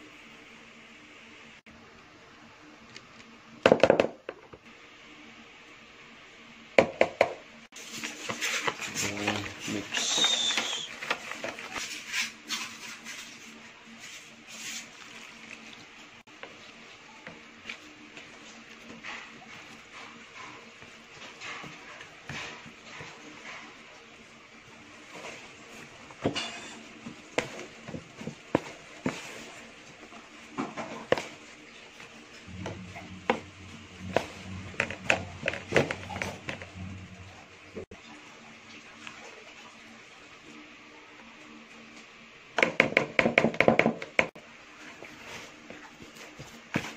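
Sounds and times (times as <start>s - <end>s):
spatula mixing in plastic bowl: 7.8s - 23.8s, 31.0s - 37.0s
faint steady hum: 13.6s - 42.5s
spatula scraping plastic bowl: 32.5s - 37.0s.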